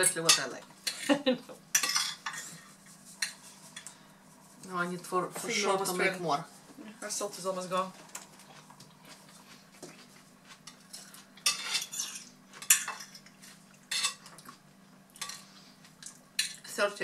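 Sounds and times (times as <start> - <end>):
knife and fork scraping plates: 1.8 - 3.8, 10.7 - 13.3, 13.9 - 14.4.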